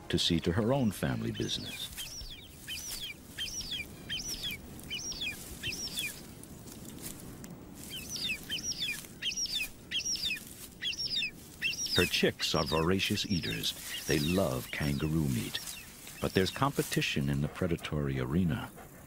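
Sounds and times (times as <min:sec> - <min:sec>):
eagle chicks begging cheeps: 0:01.0 - 0:06.2, 0:07.8 - 0:17.6.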